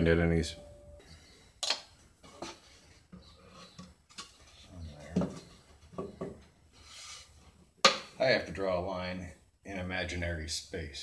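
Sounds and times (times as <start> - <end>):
wooden panels knocking: 5.1 - 6.4.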